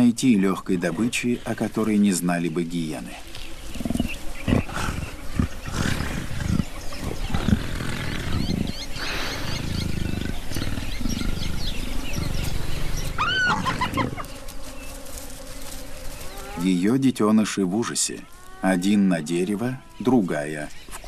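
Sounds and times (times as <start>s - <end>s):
animals snarling and growling: 3.6s - 16.8s
high wavering cries: 13.1s - 14.3s.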